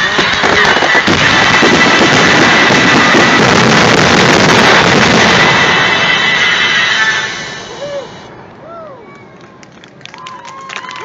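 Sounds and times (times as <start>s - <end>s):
firework shells bursting: 0.0s - 8.3s
firework crackle: 0.0s - 8.7s.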